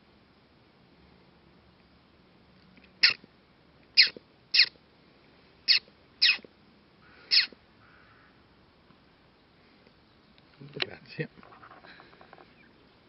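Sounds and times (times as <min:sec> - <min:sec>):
short falling animal calls: 0:07.0 - 0:08.3.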